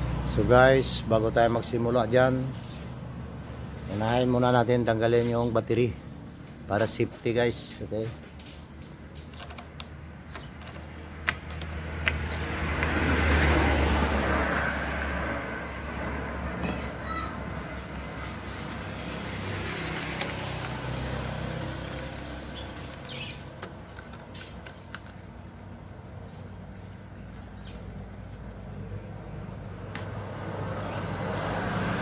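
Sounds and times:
vehicle passing by: 0.0 - 6.6, 11.0 - 24.5, 25.3 - 32.0
sharp clicks: 29.8 - 30.2.

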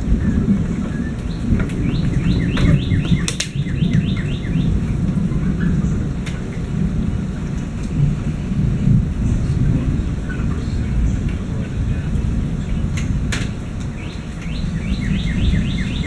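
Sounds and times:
loud steady rain: 0.0 - 16.0
thunder rumble: 0.0 - 16.0
bird descending call: 14.4 - 16.0.

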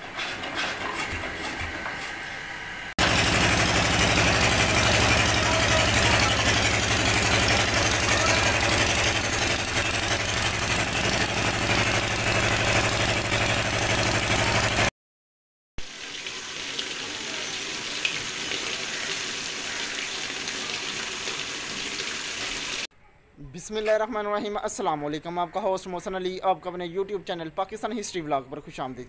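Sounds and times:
drilling rig engine running: 3.0 - 14.9.

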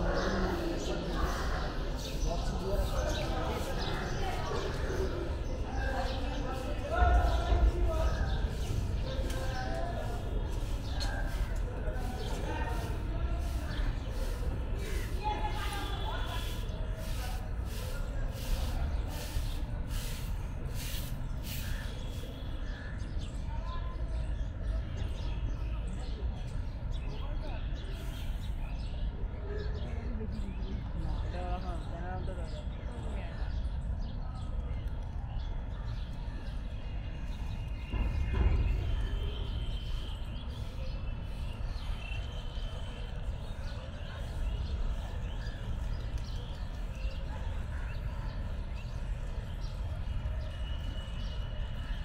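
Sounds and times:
low street rumble: 0.0 - 52.0
faint high whistle-like tones: 50.4 - 51.6.

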